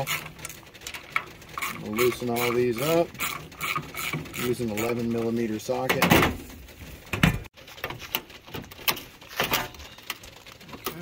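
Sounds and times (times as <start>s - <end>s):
metal scraping: 0.0s - 10.6s
metal knocks and clunks: 5.8s - 10.0s.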